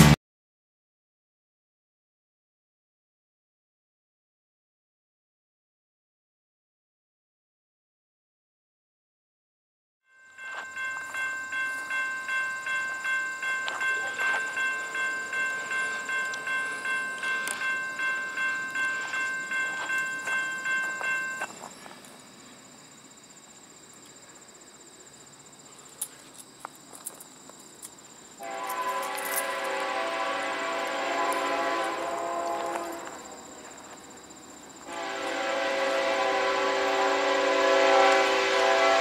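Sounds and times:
railroad crossing bell dinging: 10.1 - 21.7, 28.4 - 34.0
high insect buzz: 11.0 - 37.2
train horn blowing: 28.4 - 33.4, 34.9 - 39.0.

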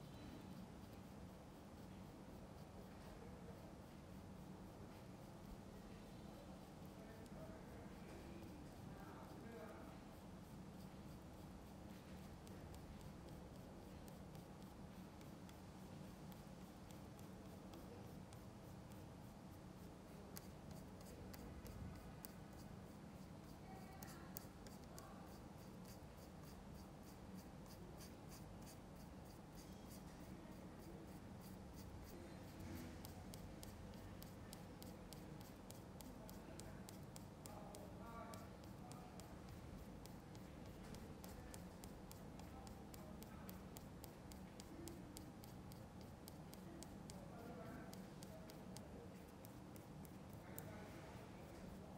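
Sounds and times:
paintbrush scratching on canvas: 0.1 - 51.9.

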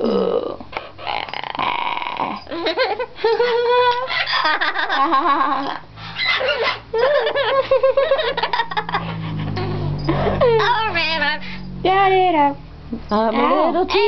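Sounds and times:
parrot croaking and calling: 3.9 - 5.0, 5.6 - 7.0.

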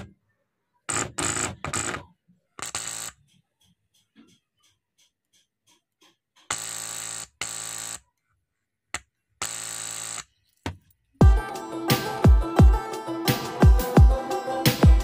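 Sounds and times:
music with heavy bass beats: 11.2 - 15.0.

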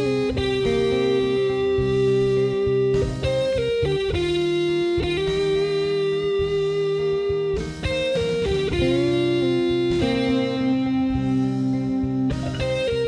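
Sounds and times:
electric guitar lead: 0.0 - 13.0
low bass part: 0.0 - 13.0.

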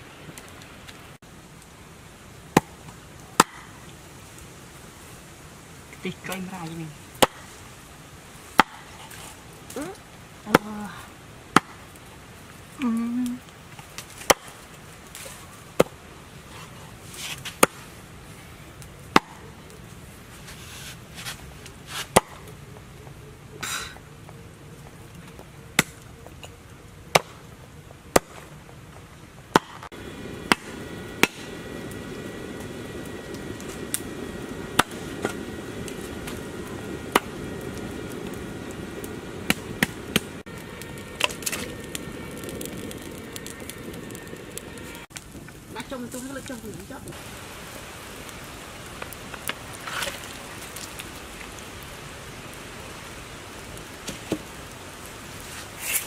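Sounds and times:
steady hiss with high tones: 29.8 - 56.0.

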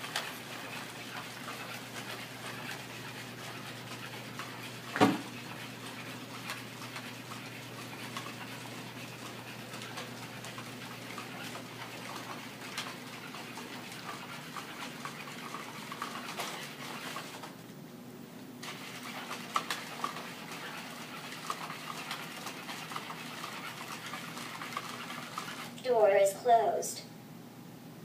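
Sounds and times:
loud thump: 5.0 - 5.2
low hum and hiss: 25.8 - 28.0.

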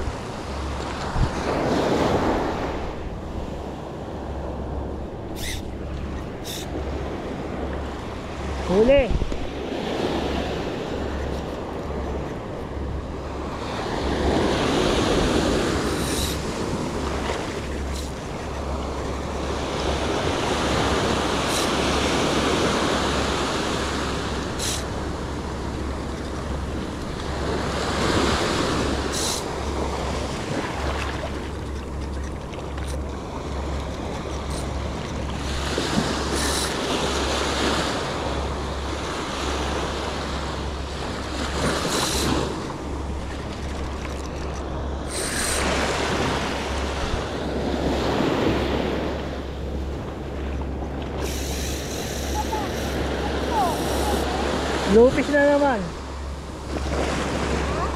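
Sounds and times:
ocean surf breaking: 0.0 - 57.9
wind rumbling on microphone: 0.0 - 57.9.

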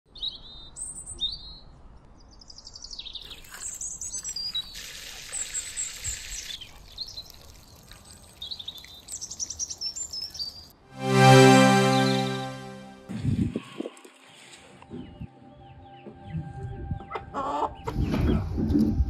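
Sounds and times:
small birds chirping and trilling: 0.1 - 10.8.

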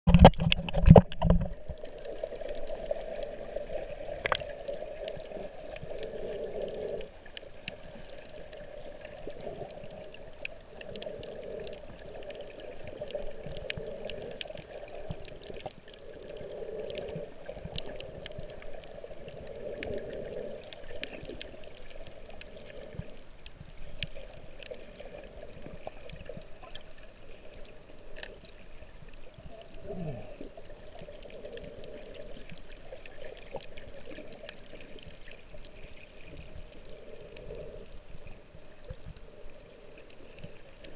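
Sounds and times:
muffled underwater rush: 0.1 - 40.9
sharp clicks and crackles: 0.1 - 40.9.

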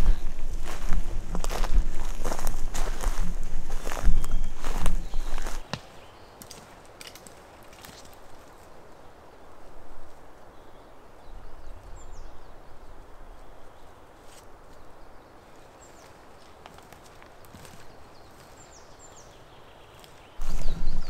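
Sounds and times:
rustle: 0.0 - 21.0
high falling bird chirps: 3.1 - 6.4, 20.4 - 21.0
low rumble: 20.4 - 21.0.

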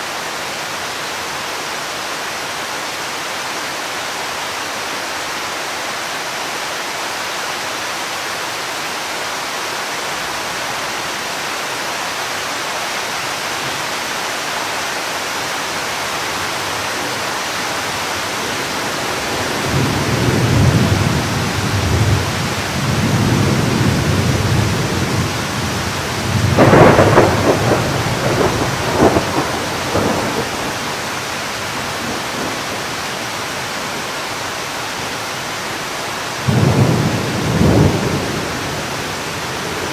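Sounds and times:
steady rain hiss: 0.0 - 39.9
rolling thunder: 18.5 - 30.9, 36.4 - 38.9.

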